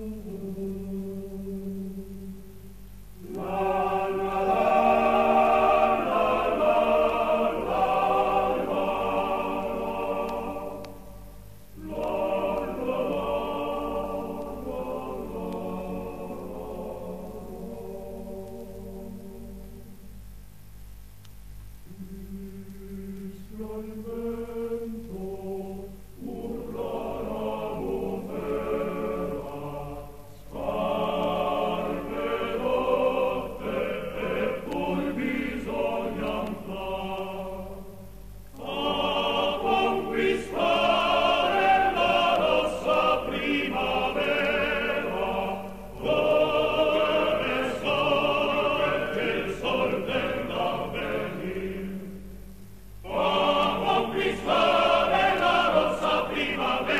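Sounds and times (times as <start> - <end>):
choir singing: 0.0 - 2.4, 3.2 - 19.9, 21.9 - 56.9
steady low hum: 0.0 - 56.9.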